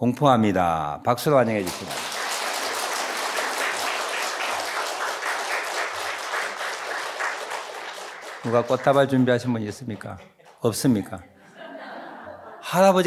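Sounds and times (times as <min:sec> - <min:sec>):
congregation applauding: 0:01.3 - 0:10.6.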